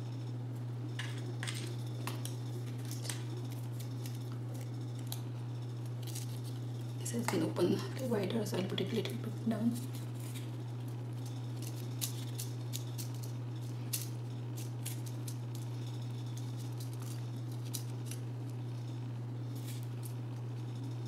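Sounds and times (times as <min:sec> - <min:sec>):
steady low hum: 0:00.0 - 0:21.0
paper crinkling and clicking: 0:01.0 - 0:07.4, 0:09.7 - 0:18.2.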